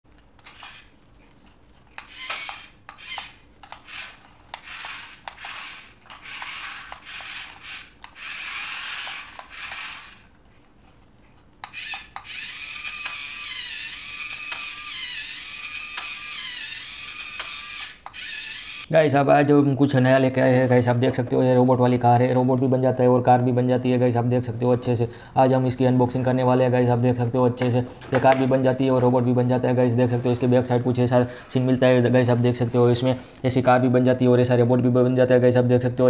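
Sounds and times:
toy gear motors whirring: 0.4s - 0.9s, 2.0s - 10.3s, 11.6s - 18.9s
sharp plastic clicks: 2.0s - 8.3s, 11.6s - 15.0s, 15.6s - 18.8s.

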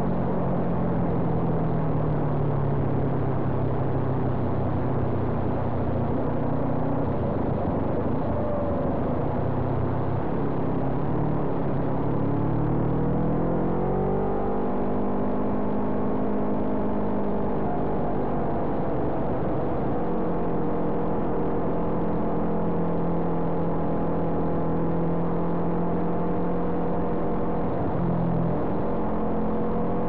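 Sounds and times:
wind and road noise: 0.0s - 30.0s
motorcycle engine at high revs: 10.1s - 30.0s.

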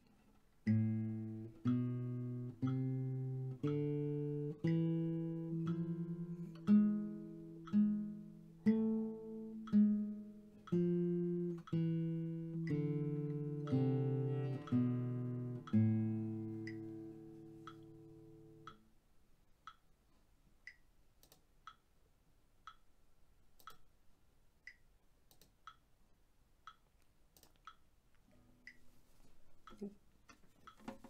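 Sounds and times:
metronome ticking: 0.6s - 18.9s, 28.6s - 28.9s, 30.6s - 31.0s
classical guitar notes: 0.7s - 18.6s.

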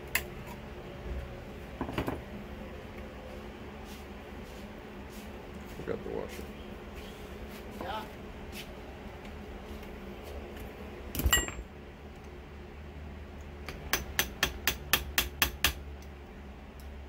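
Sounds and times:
metal clank with ring: 11.3s - 11.6s.

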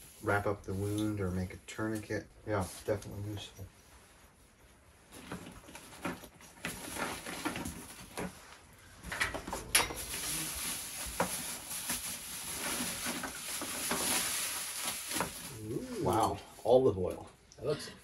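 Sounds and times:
packing paper rustling: 5.1s - 8.6s, 9.3s - 16.0s.

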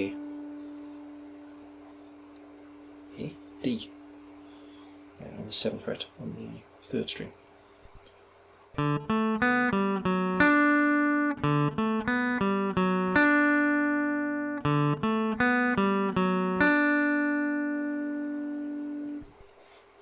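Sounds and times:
clean electric guitar riff: 0.0s - 5.0s, 8.8s - 19.3s.

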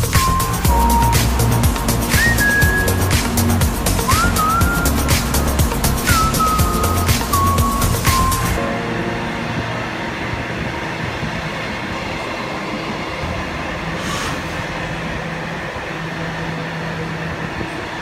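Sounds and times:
background music: 0.0s - 12.2s
freight train rumbling on rails: 0.0s - 18.0s.

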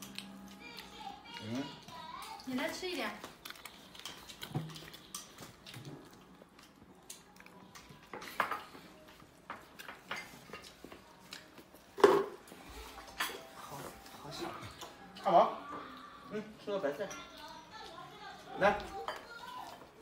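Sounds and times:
chopsticks clinking on porcelain bowls: 7.8s - 8.8s, 16.9s - 17.5s.

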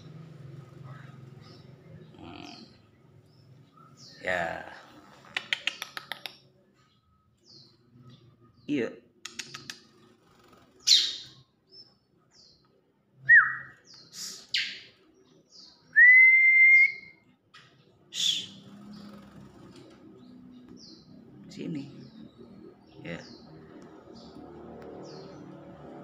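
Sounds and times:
bird chirping high and sharp: 10.8s - 11.5s, 13.3s - 15.0s, 18.1s - 19.4s
bird whistled notes: 13.2s - 14.8s, 15.9s - 17.2s, 18.1s - 18.6s.

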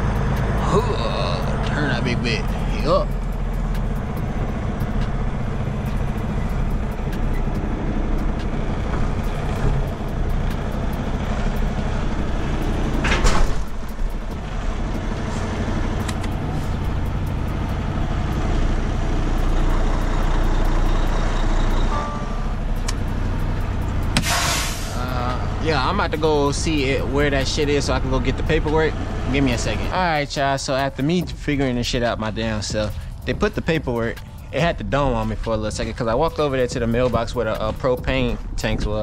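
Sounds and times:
diesel truck engine running: 0.0s - 39.0s
short loud burst of noise: 24.2s - 25.0s.

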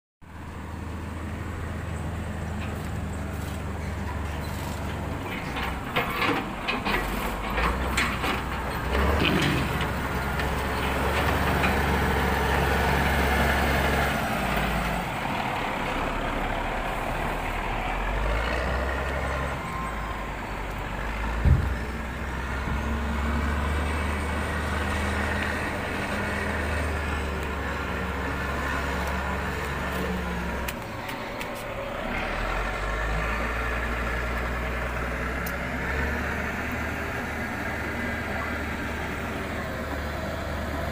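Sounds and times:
diesel truck engine running: 0.3s - 40.9s
loud thump: 21.4s - 21.8s.

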